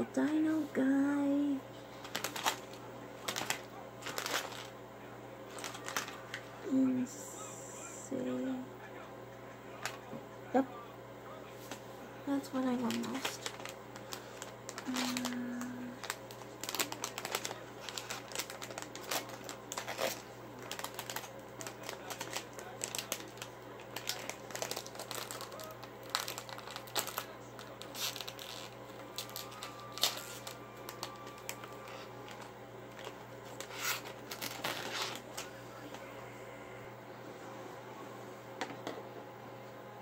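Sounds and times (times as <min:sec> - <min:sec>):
plastic bag crinkling: 0:01.9 - 0:04.8, 0:05.5 - 0:06.5, 0:12.3 - 0:35.6
plastic bag tearing open: 0:02.0 - 0:04.7, 0:05.5 - 0:06.5, 0:12.6 - 0:35.5.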